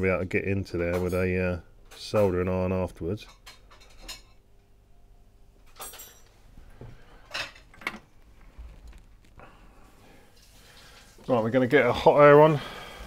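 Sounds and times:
small tools clinking: 5.7s - 6.4s.

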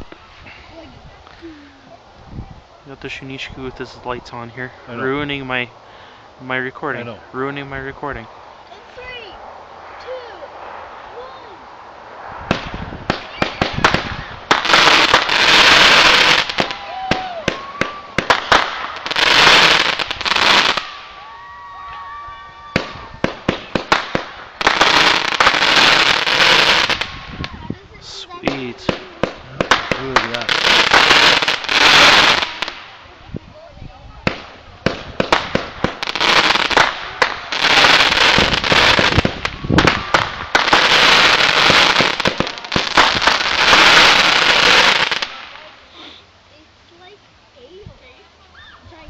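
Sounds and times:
dense crackling hiss: 0.0s - 49.0s
fireworks popping and banging: 12.4s - 21.1s, 22.7s - 27.6s, 28.4s - 33.1s, 34.2s - 45.7s.

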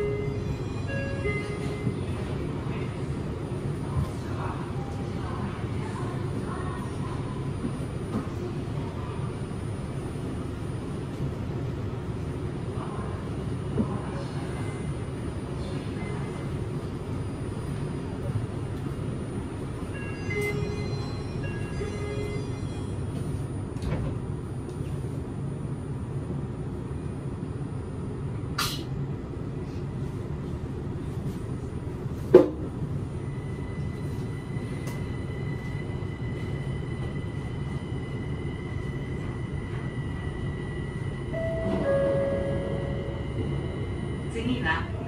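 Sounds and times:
train cabin low rumble: 0.0s - 45.0s
faint high whine: 33.2s - 45.0s.

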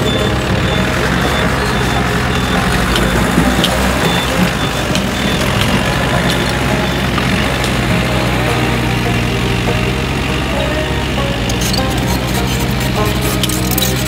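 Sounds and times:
dump truck diesel engine: 0.0s - 14.0s
mini excavator running: 0.0s - 14.0s.

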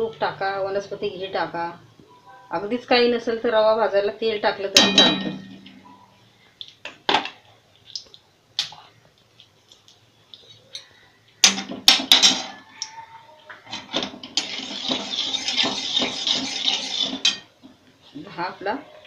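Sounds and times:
ghee hissing in pan: 14.4s - 17.3s.

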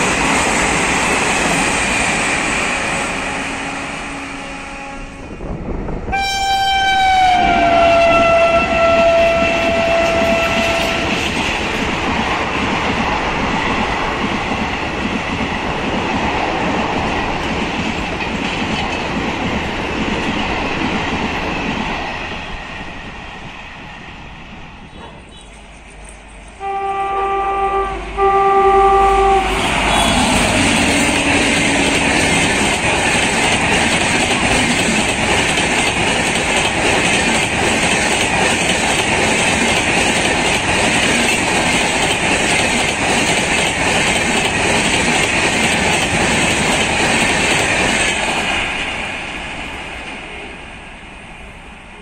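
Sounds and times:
train wheels clattering on rail: 0.0s - 3.4s, 7.4s - 26.2s, 29.6s - 50.3s
locomotive horn blasts: 3.0s - 5.4s, 6.1s - 11.2s, 26.6s - 32.2s.

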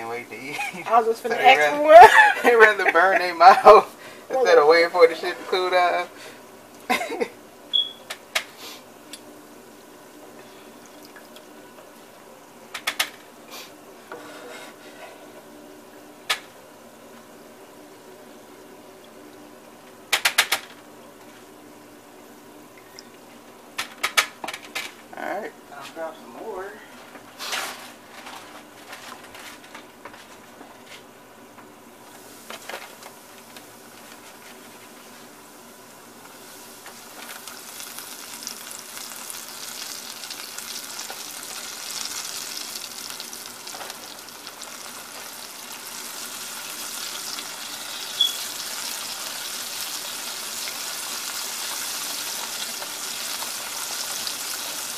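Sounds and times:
oil sizzling and bubbling: 0.0s - 25.7s, 26.6s - 54.9s
hot oil crackling: 32.0s - 54.9s.

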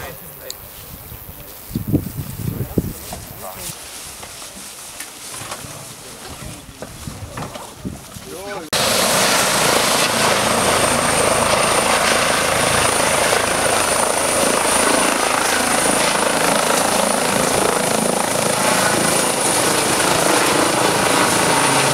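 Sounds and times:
helicopter rotor and turbines: 8.7s - 21.9s
high turbine whine: 8.8s - 21.9s.

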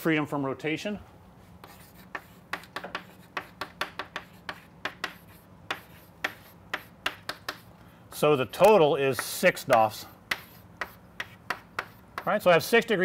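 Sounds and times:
chalk tapping and scratching: 1.5s - 7.8s, 8.6s - 12.5s.

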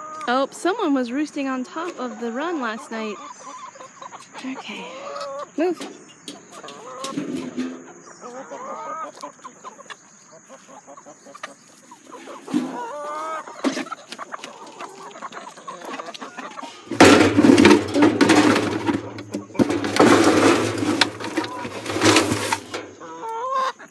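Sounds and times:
hens clucking: 0.0s - 23.9s
scoop scraping feed in metal can: 5.7s - 8.0s, 16.5s - 23.0s.

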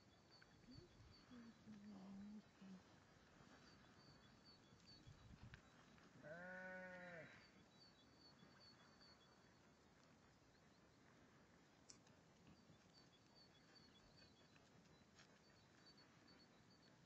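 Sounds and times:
sheep bleating: 6.2s - 7.4s.

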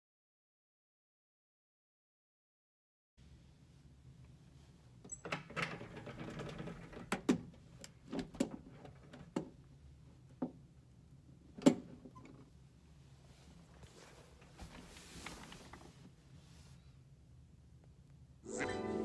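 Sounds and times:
blind rustling: 13.3s - 16.2s.

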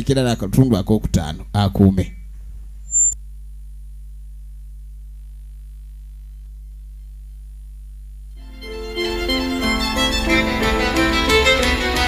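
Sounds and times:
low electrical hum: 0.0s - 10.6s
high-pitched electronic beep: 2.9s - 3.2s.

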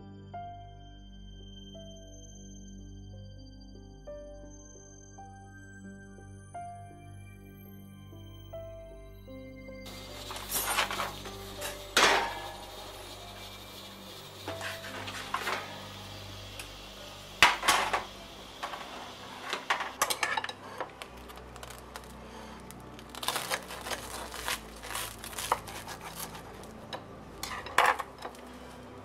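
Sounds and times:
knife scraping and clinking on plate: 19.5s - 21.0s.

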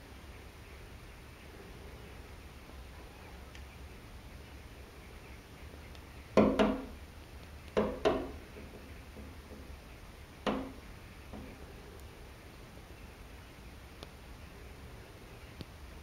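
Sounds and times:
birds tapping bills on window: 6.3s - 12.0s.

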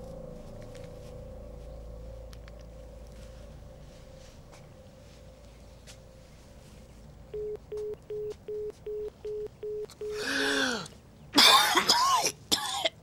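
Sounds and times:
telephone busy tone beeps: 7.3s - 10.3s
man coughing: 11.4s - 13.0s.

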